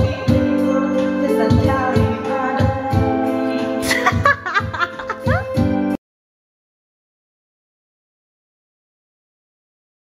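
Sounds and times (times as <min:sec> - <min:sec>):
karaoke backing music: 0:00.0 - 0:06.0
woman giggling into microphone: 0:03.8 - 0:05.6.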